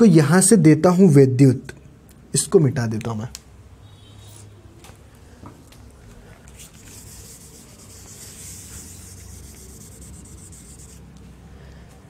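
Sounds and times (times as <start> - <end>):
duster rubbing on whiteboard: 6.5 - 11.2.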